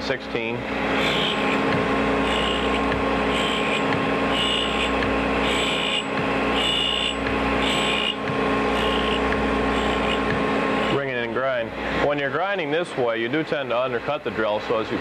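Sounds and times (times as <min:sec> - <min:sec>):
grinding wheel humming: 0:00.4 - 0:12.3
drill grinding rasp: 0:00.9 - 0:11.0.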